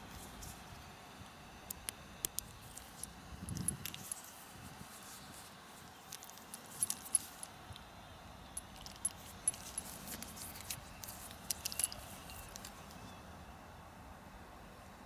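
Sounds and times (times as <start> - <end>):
smartwatch clicking and clinking: 6.0 - 7.6, 8.5 - 13.0.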